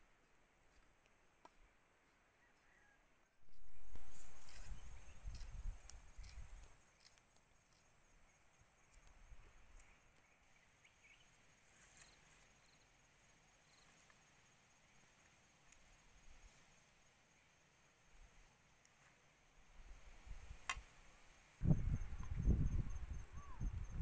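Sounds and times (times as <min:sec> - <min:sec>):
wind buffeting microphone: 0:21.6 - 0:24.0.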